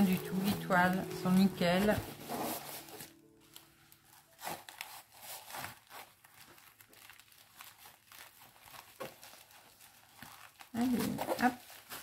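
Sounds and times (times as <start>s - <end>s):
packaging crinkling and rustling: 0.0s - 12.0s.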